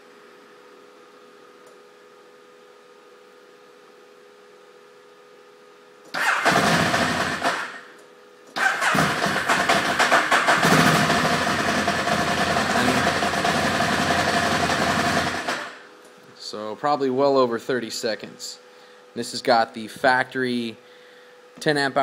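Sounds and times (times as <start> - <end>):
starter motor cranking: 6.1 - 7.9, 8.6 - 15.8
motorcycle engine running unevenly: 6.2 - 7.8, 8.6 - 15.8.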